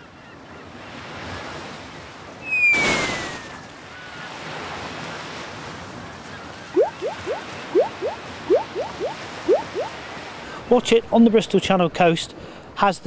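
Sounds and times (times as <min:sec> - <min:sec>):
sea and surf: 0:00.0 - 0:13.0
cartoon falling whistle: 0:02.5 - 0:03.6
rising bubble bloops: 0:06.8 - 0:10.0.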